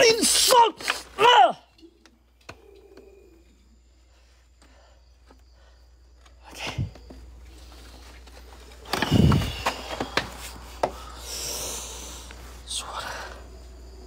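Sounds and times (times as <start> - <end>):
handling rubbing and scraping: 6.8 - 11.0.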